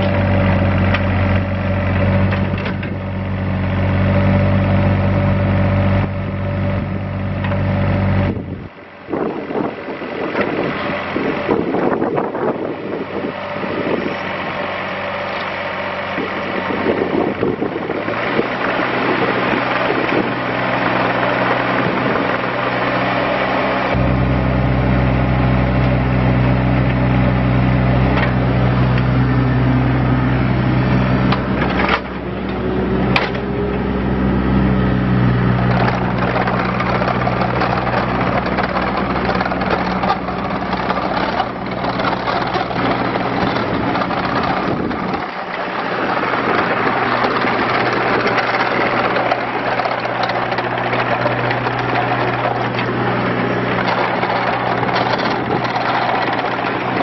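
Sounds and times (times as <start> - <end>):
excavator diesel engine running: 0.0 - 57.0
short rising whine: 21.1 - 57.0.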